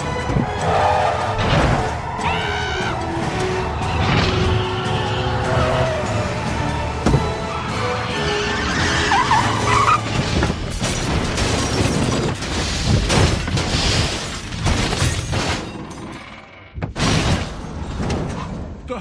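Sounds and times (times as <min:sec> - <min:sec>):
tyres squealing: 0:07.5 - 0:10.2.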